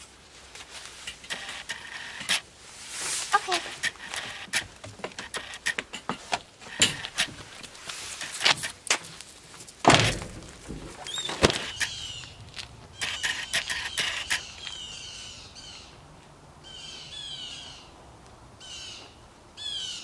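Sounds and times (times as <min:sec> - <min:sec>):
clicks and knocks of handled crates: 0:03.7 - 0:14.4
heavy thunk: 0:09.8 - 0:11.8
sharp knock: 0:09.9 - 0:11.8
bird chirps: 0:11.0 - 0:12.4, 0:13.0 - 0:16.0.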